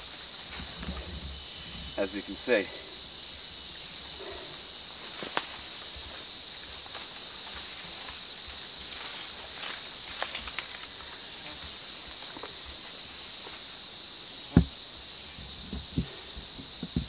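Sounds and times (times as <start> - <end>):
insect chorus hissing: 0.0 - 17.0
twigs and leaf litter crackling: 4.2 - 13.7
sharp thump: 14.5 - 14.7.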